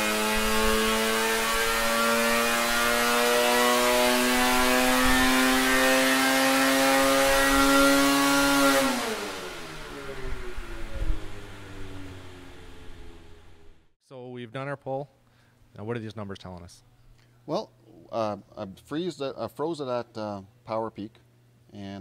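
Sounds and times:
snowmobile engine revving: 0.0 - 13.8.

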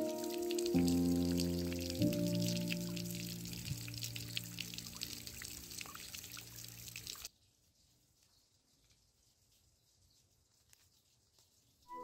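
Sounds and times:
sprinkler spraying water: 0.0 - 7.4.

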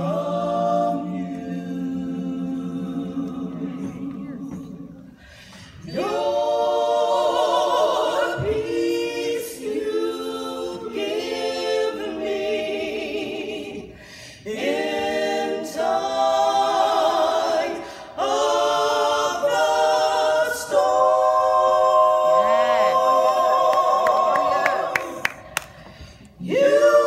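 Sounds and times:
women singing a cappella: 0.0 - 27.0
singers breathing: 5.0 - 5.9, 13.9 - 14.5, 17.8 - 18.2, 25.4 - 26.4.

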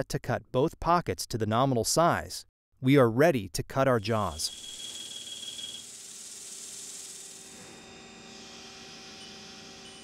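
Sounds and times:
lathe machine hum and whine: 7.3 - 10.0.

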